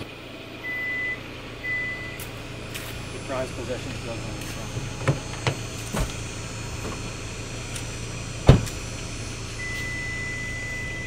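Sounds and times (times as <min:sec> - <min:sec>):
steady high tone: 0:00.0 - 0:11.0
car door shutting: 0:04.4 - 0:07.1, 0:08.4 - 0:08.9.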